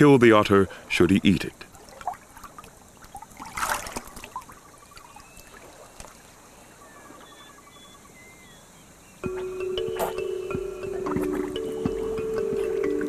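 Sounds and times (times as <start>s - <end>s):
river water lapping and trickling: 0.0s - 13.0s
faint high chirps: 6.5s - 13.0s
music: 9.2s - 13.0s.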